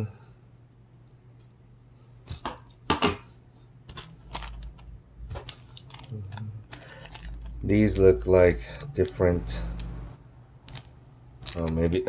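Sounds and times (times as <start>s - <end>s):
plastic zip bag crinkling: 3.9s - 9.9s, 10.6s - 12.0s.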